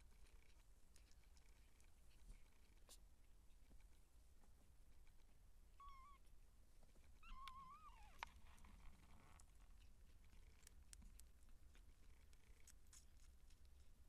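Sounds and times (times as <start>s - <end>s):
kitten mewing: 5.8s - 6.3s.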